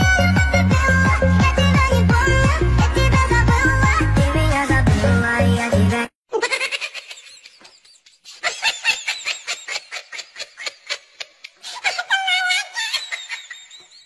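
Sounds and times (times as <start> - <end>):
dance track: 0.0 - 6.0.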